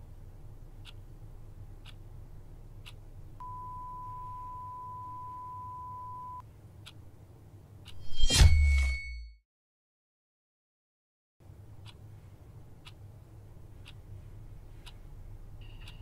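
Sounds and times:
clock ticking: 0.7 - 3.5, 11.4 - 16.0.

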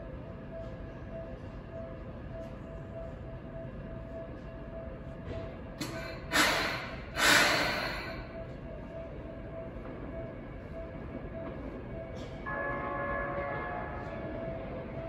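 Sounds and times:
steady station hum: 0.0 - 15.0
compressed air hissing: 6.3 - 8.0.

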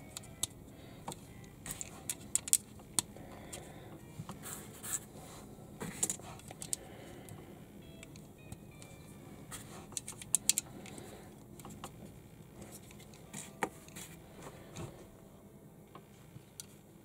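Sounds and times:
plastic bricks clicking and rattling: 1.7 - 3.1.

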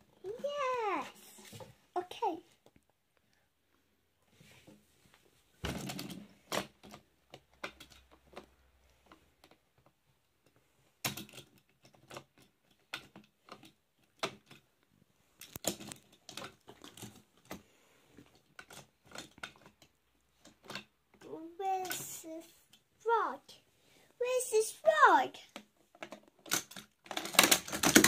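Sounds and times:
plastic toy clicks and knocks: 5.7 - 14.7, 15.4 - 17.6, 18.2 - 21.2, 21.8 - 22.8, 25.5 - 28.0.

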